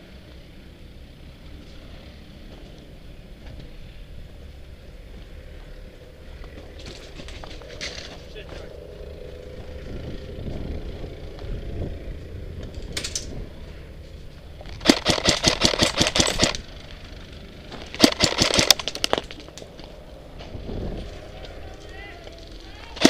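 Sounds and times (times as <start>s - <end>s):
airsoft rifle firing bursts: 14.8s - 16.6s, 18.0s - 19.1s.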